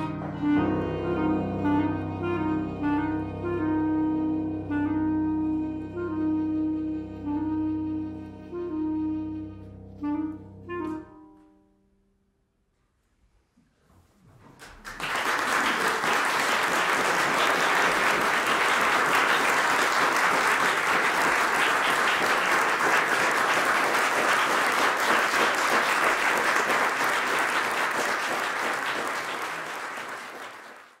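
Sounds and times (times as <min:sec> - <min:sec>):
audience applauding: 0:14.5 - 0:31.0.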